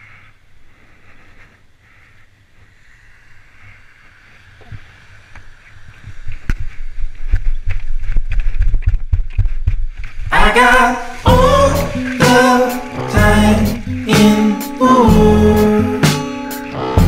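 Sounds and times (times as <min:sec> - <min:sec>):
surf hiss: 0:00.0 - 0:07.4, 0:10.0 - 0:17.0
wind buffeting: 0:01.6 - 0:15.9
thumps and rumbles on camera microphone: 0:04.6 - 0:12.6.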